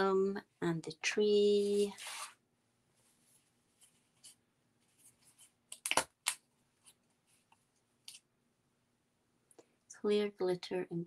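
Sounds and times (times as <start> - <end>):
rustling of thin wood and card: 1.6 - 2.4.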